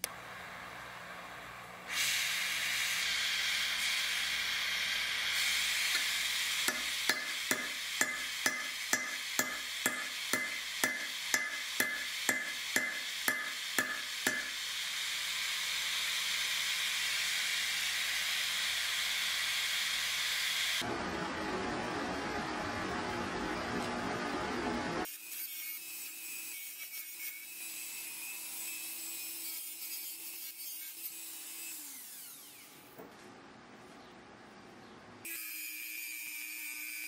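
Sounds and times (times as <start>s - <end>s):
torch flame hissing: 1.8s - 20.8s.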